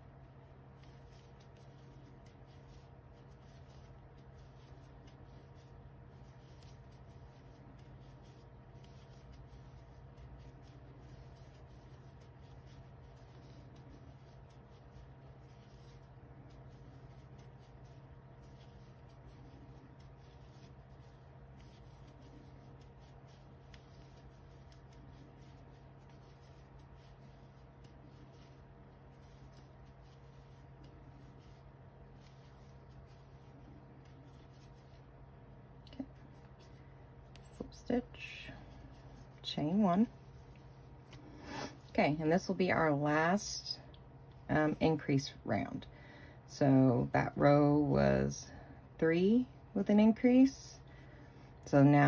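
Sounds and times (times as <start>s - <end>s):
steady low hum: 0.0s - 52.0s
crochet hook pulling yarn: 0.2s - 42.0s.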